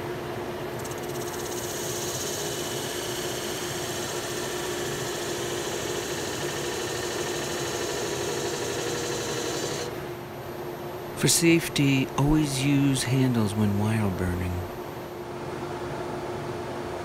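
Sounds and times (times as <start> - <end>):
wood lathe motor humming: 0.8 - 9.9.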